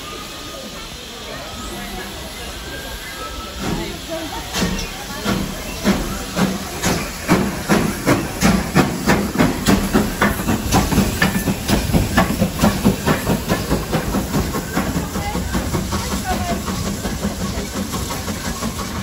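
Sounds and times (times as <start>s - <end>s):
steady steam hiss: 0.0s - 19.0s
steam locomotive exhaust chuffs: 0.0s - 19.0s.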